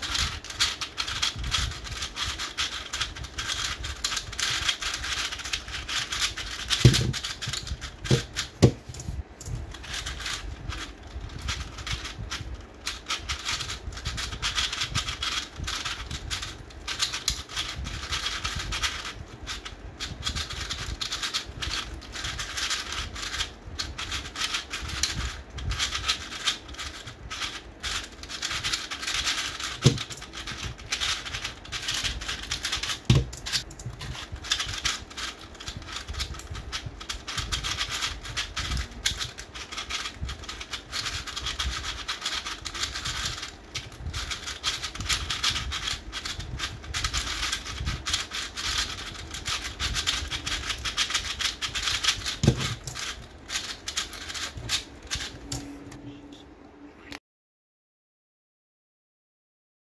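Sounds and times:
sharp plastic knocks: 0:06.7 - 0:09.0, 0:29.8 - 0:30.2, 0:32.9 - 0:34.2, 0:52.3 - 0:53.1
small plastic clicks and clacks: 0:27.4 - 0:35.3.

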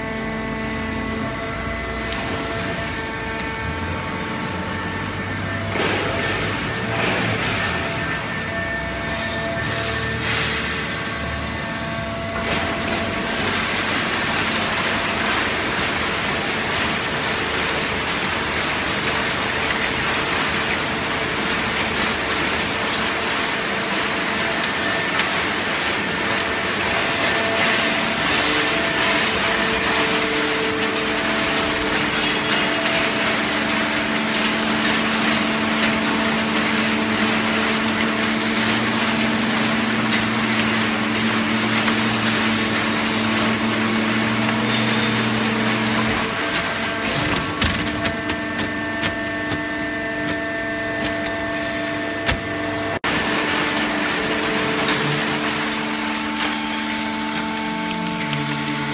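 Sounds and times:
baling press machine running: 0:00.0 - 0:58.9
low machine hum: 0:00.0 - 0:58.9.

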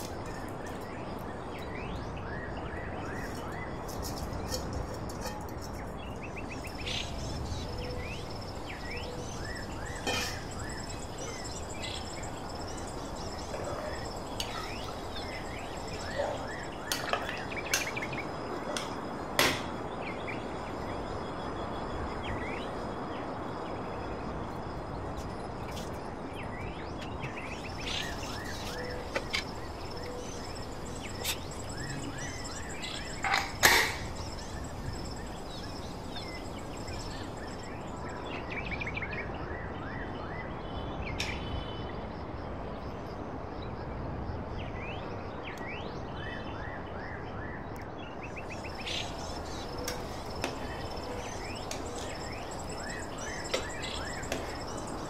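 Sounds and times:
small birds chirping: 0:00.0 - 0:19.1, 0:25.2 - 0:39.2, 0:48.1 - 0:55.0
background hiss: 0:03.2 - 0:38.9, 0:48.3 - 0:55.0.

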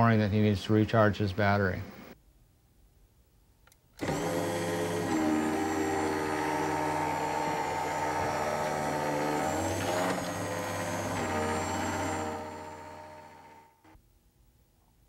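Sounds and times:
motor and gearbox whining: 0:04.0 - 0:13.9.

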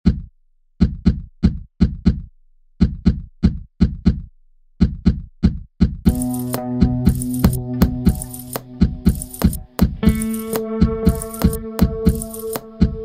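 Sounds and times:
deep knocking percussion beat: 0:00.0 - 0:13.0
sustained pitched chords: 0:06.1 - 0:13.0.

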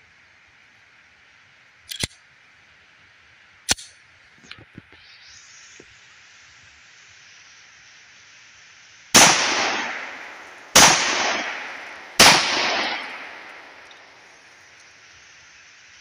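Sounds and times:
pistol shots with echo: 0:09.2 - 0:14.3.

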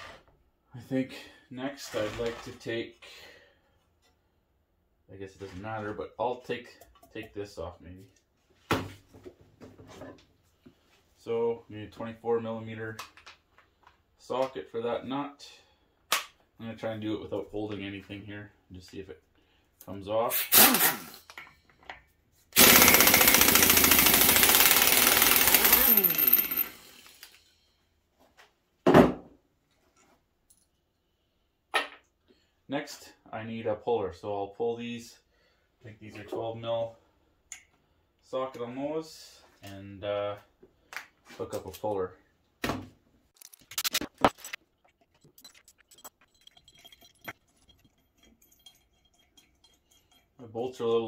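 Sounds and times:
pneumatic impact wrench hammering: 0:20.4 - 0:21.2, 0:22.6 - 0:27.4
metallic clinks and clicks: 0:43.4 - 0:50.4.

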